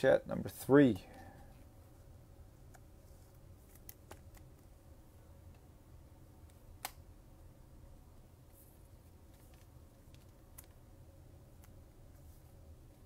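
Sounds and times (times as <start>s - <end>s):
cards being handled and flipped: 2.6s - 4.8s, 8.5s - 10.8s.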